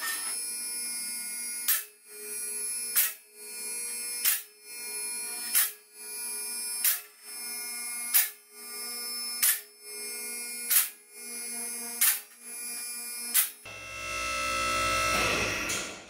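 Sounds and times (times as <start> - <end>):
hydraulic power unit hum: 13.7 - 16.0.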